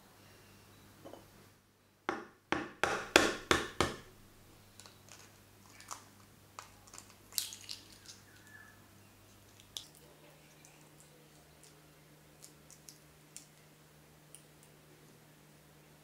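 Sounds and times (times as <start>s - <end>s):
eggshell crackling: 4.7s - 8.7s, 9.3s - 13.7s.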